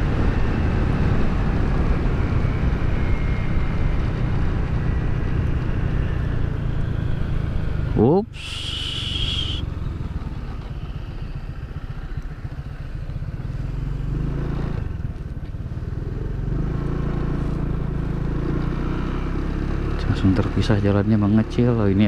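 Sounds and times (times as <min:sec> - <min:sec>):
road and wind noise: 0:00.0 - 0:22.0
short high-pitched squeal: 0:08.3 - 0:09.6.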